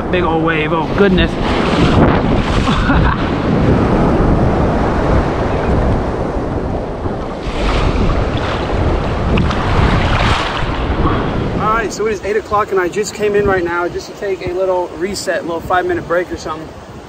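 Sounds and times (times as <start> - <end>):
ocean surf breaking: 0.0 - 17.0
wind buffeting microphone: 0.0 - 17.0
water splashing over microphone: 7.0 - 12.0.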